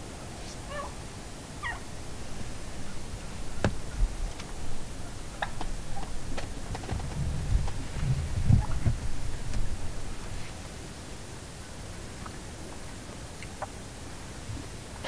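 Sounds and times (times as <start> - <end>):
turkey wavering calls: 0.6 - 1.0, 1.6 - 6.4, 8.4 - 10.3
turkey clucks: 1.6 - 7.0, 8.5 - 10.3, 13.4 - 13.8.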